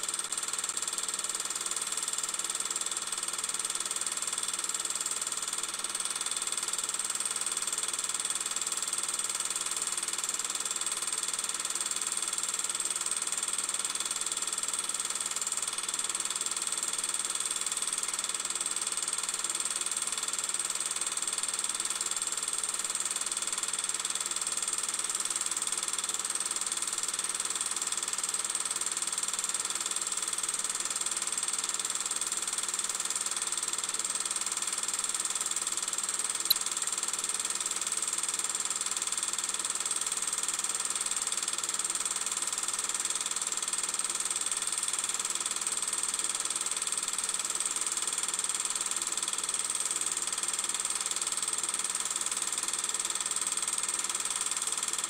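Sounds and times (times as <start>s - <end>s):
brief click: 36.5s - 36.7s.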